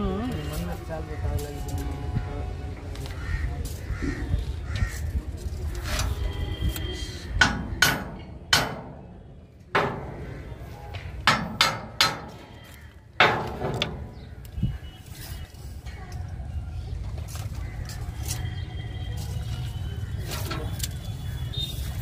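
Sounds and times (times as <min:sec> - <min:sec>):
hammer striking steel: 0:07.4 - 0:09.0, 0:11.2 - 0:12.4.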